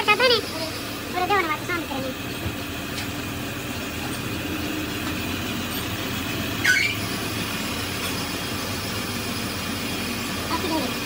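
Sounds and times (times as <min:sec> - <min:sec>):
boring machine humming: 0:00.0 - 0:11.0
metallic squeal: 0:06.6 - 0:07.1.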